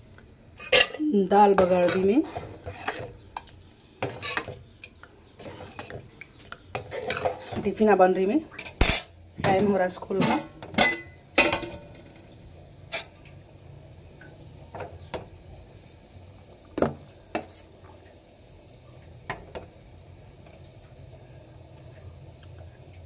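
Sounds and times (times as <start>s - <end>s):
spoon clinking on steel containers: 10.2s - 11.8s.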